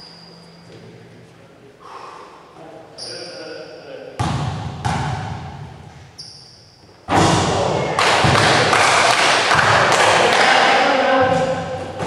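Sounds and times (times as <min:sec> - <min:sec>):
brief high squeak: 0:00.0 - 0:00.8, 0:06.2 - 0:06.8
loud dense noise near microphone: 0:00.0 - 0:12.0
basketball bouncing on gym floor: 0:04.2 - 0:05.8, 0:07.1 - 0:08.9, 0:09.5 - 0:10.2, 0:11.1 - 0:12.0.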